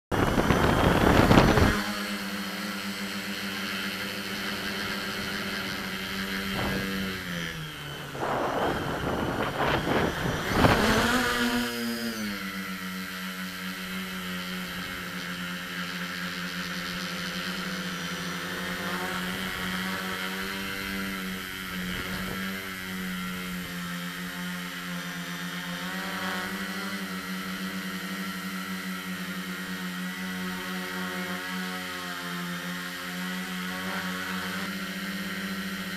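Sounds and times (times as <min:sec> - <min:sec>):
drone motors humming: 0:00.1 - 0:35.9
rush of air: 0:05.1 - 0:11.6.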